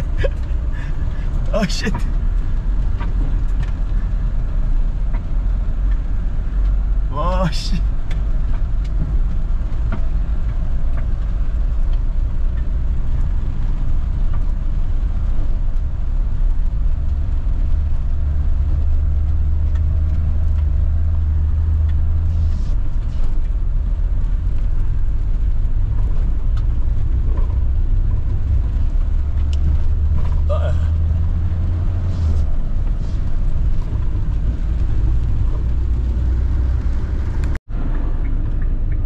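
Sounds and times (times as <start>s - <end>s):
engine and tyre rumble: 0.0s - 39.0s.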